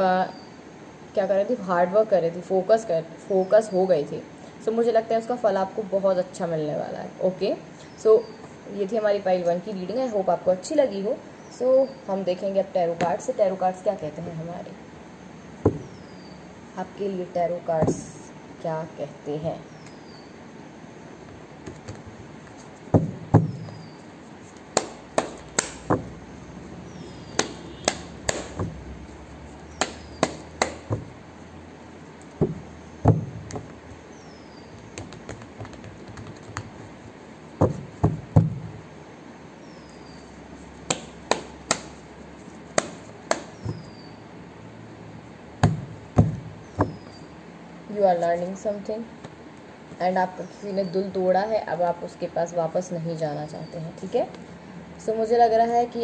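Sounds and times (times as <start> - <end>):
cards being shuffled: 21.6 - 22.9, 34.8 - 37.0.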